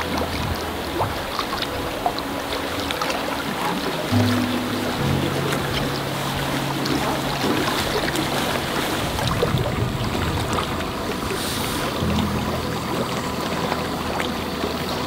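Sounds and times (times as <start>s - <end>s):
low steady tones: 0.0s - 15.0s
rushing water: 0.0s - 15.0s
wind: 0.0s - 15.0s.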